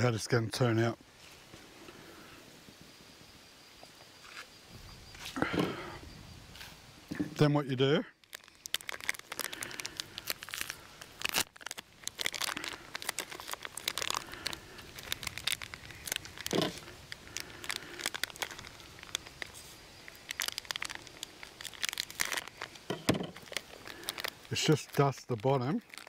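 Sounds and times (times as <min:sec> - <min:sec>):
plastic bag crinkling: 0:08.2 - 0:26.0.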